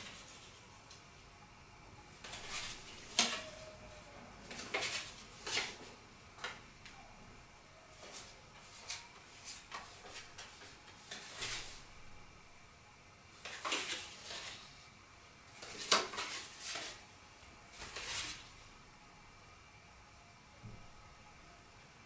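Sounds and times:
cards sliding papery swishes: 2.2 - 3.5, 4.5 - 5.9, 8.0 - 11.9, 13.4 - 14.8, 15.6 - 17.0, 17.7 - 18.5
cards tapping and clicking: 4.5 - 6.6, 15.6 - 17.0.

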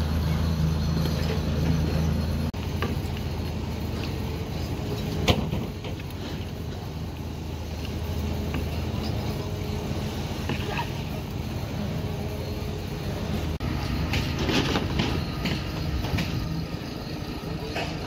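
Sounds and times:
low machinery hum: 0.0 - 18.0.

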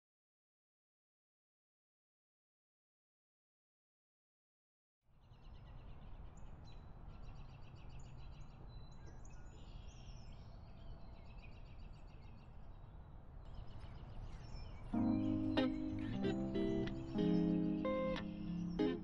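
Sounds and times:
birds chirping: 5.4 - 19.0.

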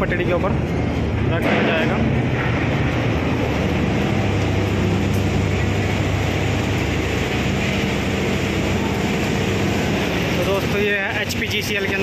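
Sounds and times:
industrial din: 0.0 - 12.0
low machine hum: 0.0 - 12.0.

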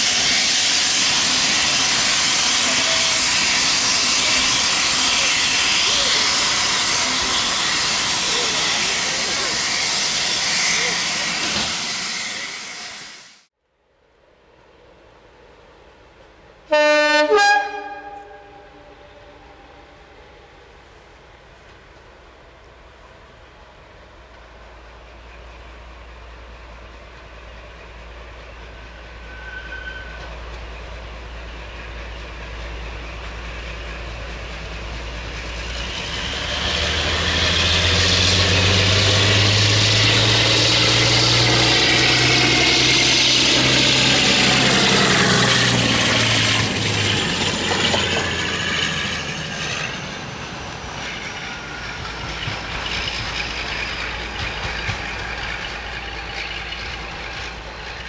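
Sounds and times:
diesel locomotive passing: 0.0 - 13.5, 14.5 - 58.0.

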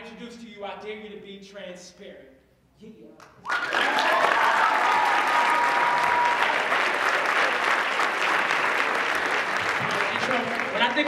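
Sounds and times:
high whoop: 3.4 - 6.8
audience applauding: 3.4 - 11.0.

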